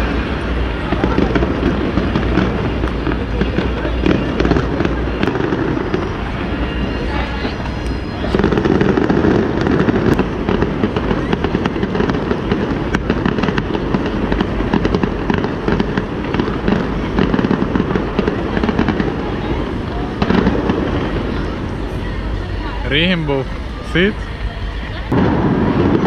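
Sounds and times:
fireworks bangs and crackles: 0:00.0 - 0:26.0.

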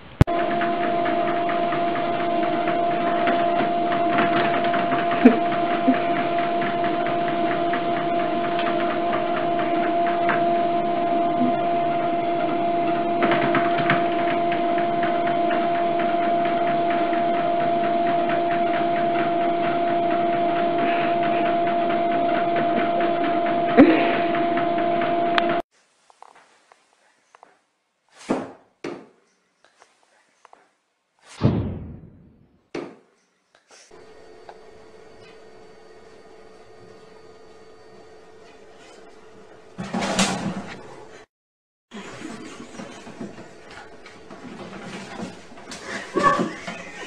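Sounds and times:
treadmill motor and belt whir: 0:00.2 - 0:25.6, 0:33.9 - 0:41.3, 0:41.9 - 0:47.0
cats stepping on treadmill deck: 0:42.0 - 0:47.0.

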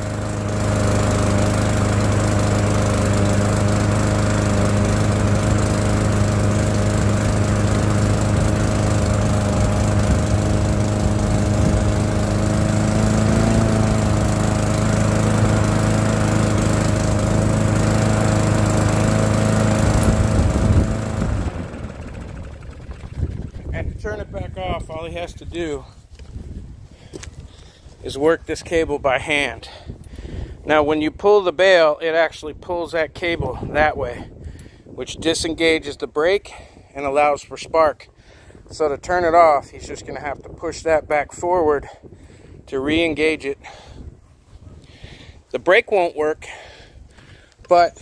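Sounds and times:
small lawn mower engine idling: 0:00.0 - 0:25.8.

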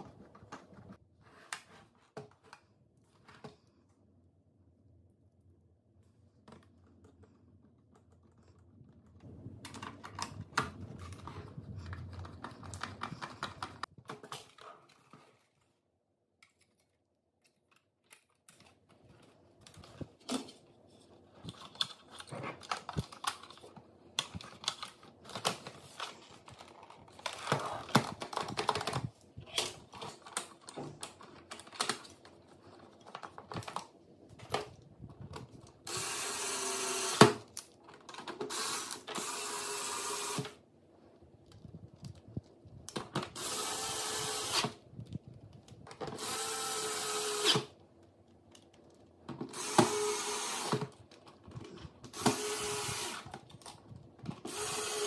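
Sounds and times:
plastic parts clicking and rattling: 0:06.4 - 0:15.8, 0:16.4 - 0:40.6, 0:47.3 - 0:55.0
cordless screwdriver running: 0:35.9 - 0:37.3, 0:38.5 - 0:40.5, 0:43.4 - 0:44.7, 0:46.2 - 0:47.7, 0:49.6 - 0:50.9, 0:52.1 - 0:53.3, 0:54.5 - 0:55.0.

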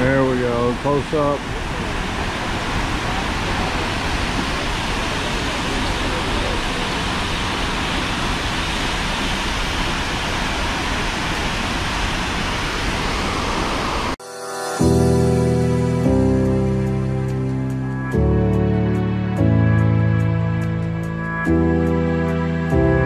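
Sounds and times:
waterfall rushing: 0:00.0 - 0:14.2.

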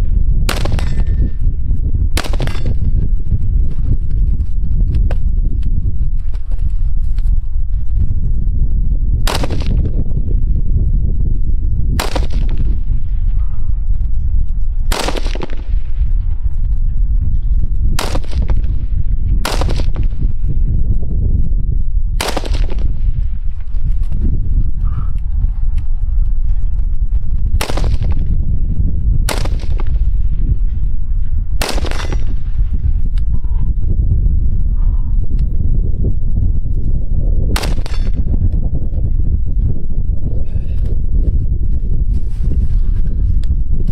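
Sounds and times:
low rumble: 0:00.0 - 0:43.9
rifle shots with echo: 0:00.4 - 0:01.3, 0:02.2 - 0:02.9, 0:09.3 - 0:09.9, 0:12.0 - 0:12.9, 0:14.9 - 0:16.0, 0:18.0 - 0:18.8, 0:19.4 - 0:20.2, 0:22.2 - 0:23.1, 0:27.6 - 0:28.2, 0:29.3 - 0:30.1, 0:31.6 - 0:32.5, 0:37.6 - 0:38.2.

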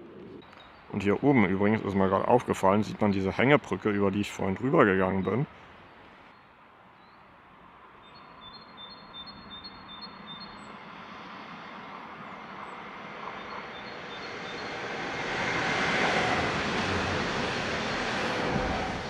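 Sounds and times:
electric train passing: 0:08.7 - 0:19.0.

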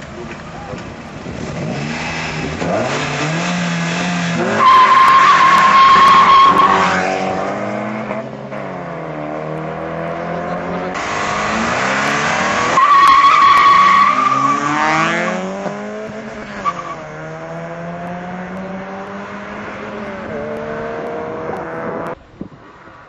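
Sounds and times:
car engines revving: 0:00.0 - 0:23.0
tyres squealing: 0:04.4 - 0:07.0, 0:10.9 - 0:15.0.

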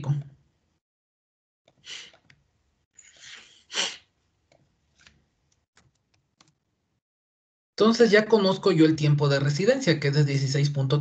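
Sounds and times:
person sneezing: 0:01.8 - 0:02.2, 0:03.1 - 0:04.1.

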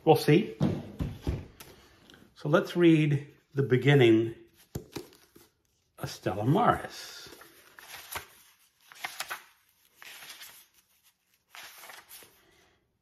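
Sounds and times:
book pages rustling: 0:04.5 - 0:06.0, 0:06.7 - 0:12.6.

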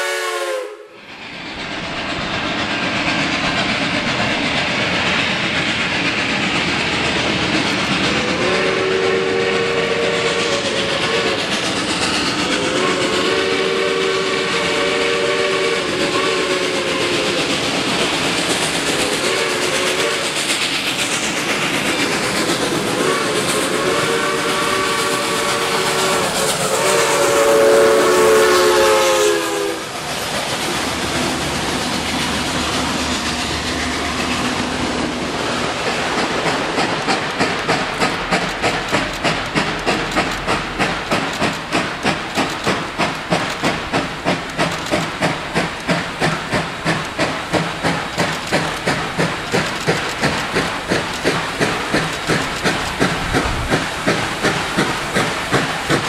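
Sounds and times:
steam whistle blasts: 0:00.0 - 0:01.1, 0:08.2 - 0:11.5, 0:12.6 - 0:17.4, 0:19.0 - 0:20.4, 0:23.0 - 0:29.9
steam locomotive passing: 0:00.0 - 0:56.0
train wheels clickety-clack on rails: 0:00.0 - 0:56.0.

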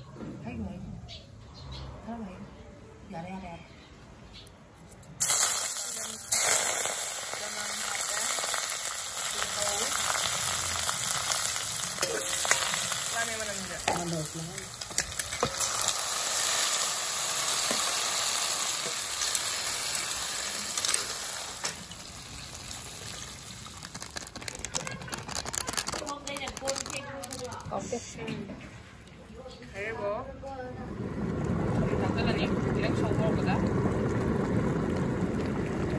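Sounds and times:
vegetables sizzling in hot oil: 0:05.2 - 0:27.6.

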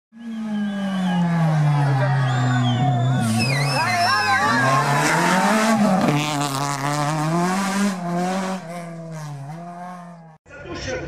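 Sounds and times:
racing engine revving: 0:00.2 - 0:10.4
tyres squealing: 0:02.1 - 0:06.4.

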